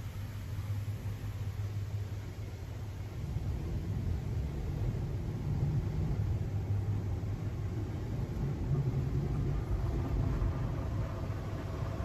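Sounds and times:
car wash low rumble: 0.0 - 12.0.

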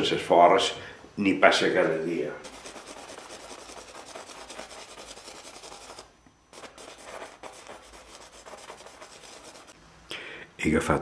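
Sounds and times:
drawing stick scratching on canvas: 2.4 - 9.8.

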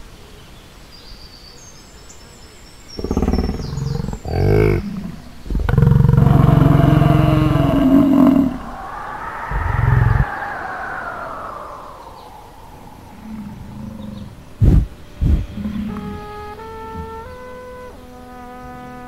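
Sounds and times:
cartoon animal growling and roaring: 3.0 - 16.0.

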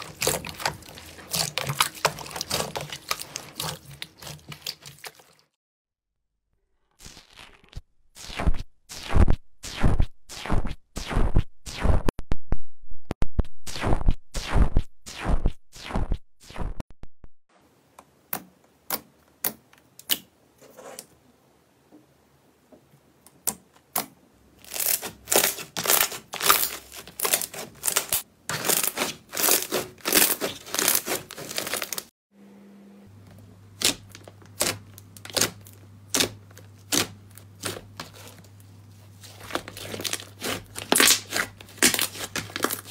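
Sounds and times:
slime popping and crackling: 24.6 - 32.1, 39.5 - 42.9.

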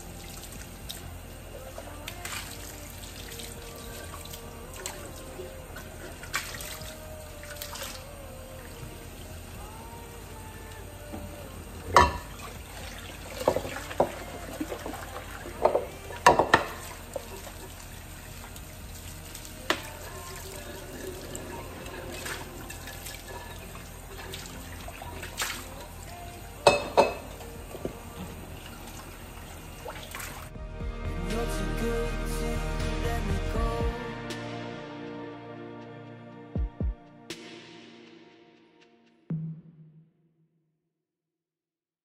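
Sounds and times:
bowls knocking against sink: 12.0 - 12.3, 15.6 - 16.8, 26.6 - 27.9.

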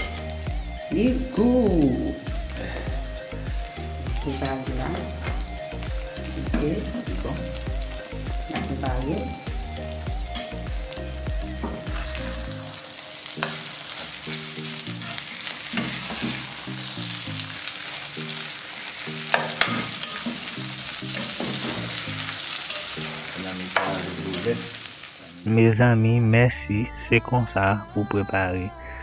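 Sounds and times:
eggs sizzling in a frying pan: 0.0 - 25.5
metal spatula scraping a pan: 11.6 - 12.4, 13.4 - 17.0, 19.3 - 24.7.

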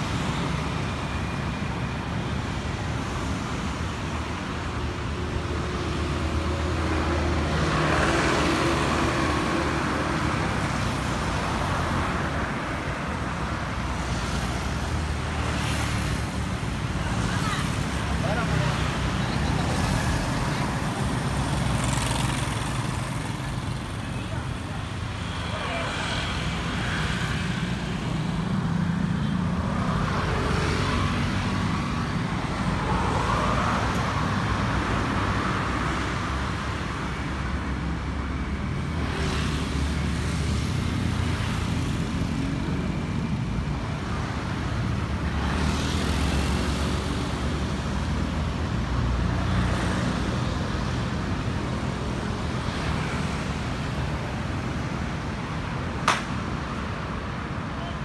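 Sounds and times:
vehicles passing: 0.0 - 58.0
sharp click: 56.0 - 56.4.

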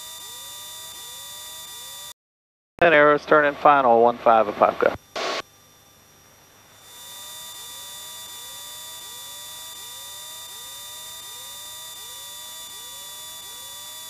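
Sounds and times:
radio transmission click: 4.8 - 5.4.

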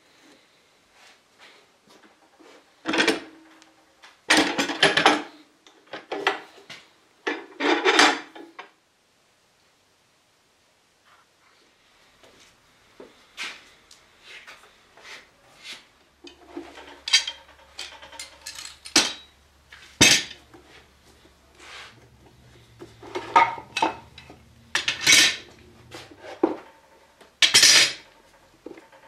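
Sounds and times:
metal clamps clanking: 16.3 - 20.6, 22.0 - 26.8, 27.4 - 28.2.

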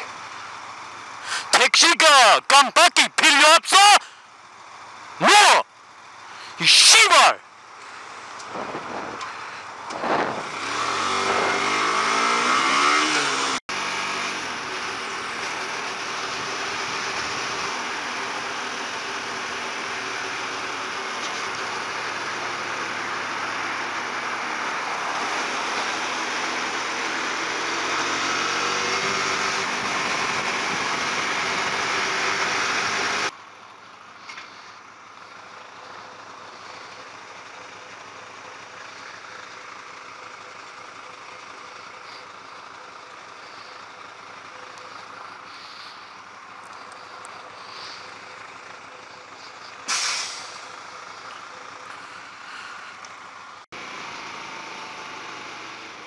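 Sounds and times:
idling traffic and truck engines: 0.0 - 56.0
wind noise on microphone: 8.5 - 9.2, 10.0 - 10.6
truck air brakes hissing: 45.4 - 46.3, 47.1 - 48.5, 49.3 - 51.2.

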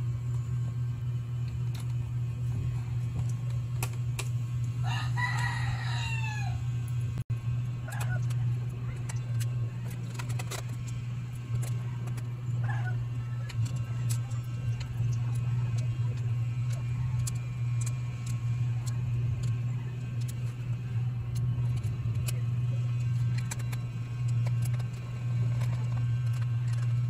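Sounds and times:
steady low hum: 0.0 - 27.0
rooster crowing: 4.8 - 6.7.

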